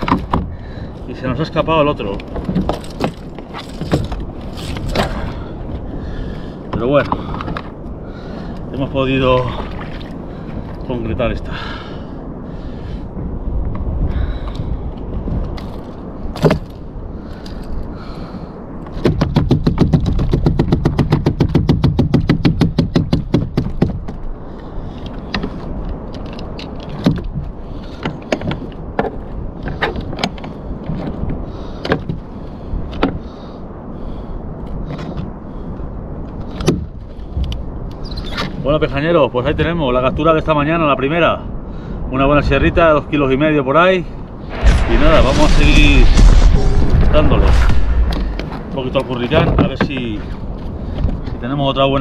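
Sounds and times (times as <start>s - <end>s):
knocks and scrapes on kayak: 0.0s - 0.6s, 2.2s - 5.3s
water noise: 0.0s - 18.5s, 44.4s - 51.2s
wind: 0.0s - 52.0s.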